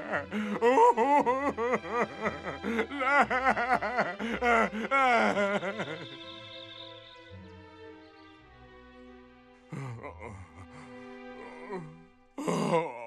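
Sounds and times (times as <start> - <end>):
comic sobbing voice: 0.0 - 6.0, 9.7 - 13.0.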